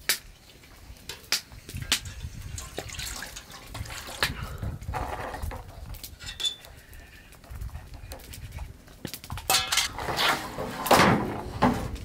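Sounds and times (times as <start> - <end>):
metal bowl and utensil clinking: 9.5 - 10.0.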